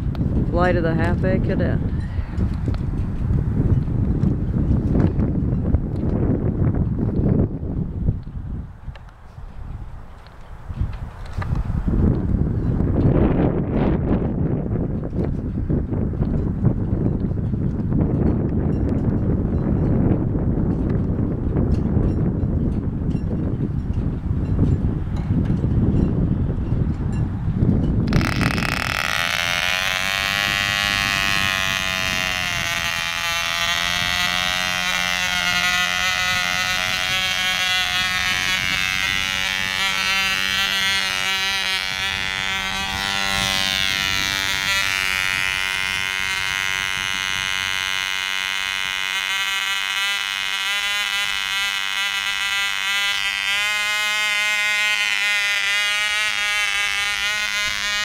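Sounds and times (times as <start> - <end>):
wind rumbling on microphone: 0.0 - 58.0
model airplane engine buzzing: 27.6 - 58.0.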